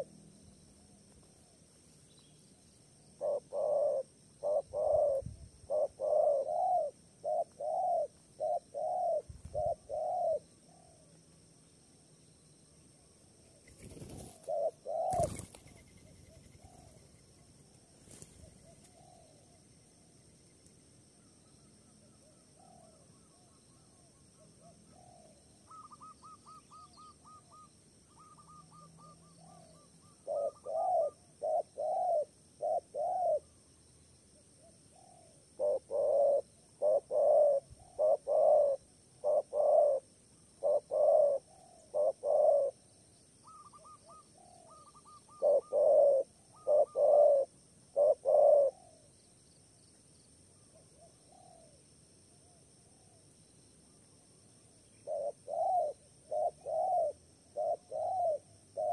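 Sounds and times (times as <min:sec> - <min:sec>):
dove cooing: 0:03.2 - 0:11.1, 0:13.6 - 0:17.1, 0:18.1 - 0:19.6, 0:24.4 - 0:33.5, 0:34.9 - 0:42.8, 0:43.4 - 0:49.1, 0:50.8 - 0:51.8, 0:55.0 - 0:58.9.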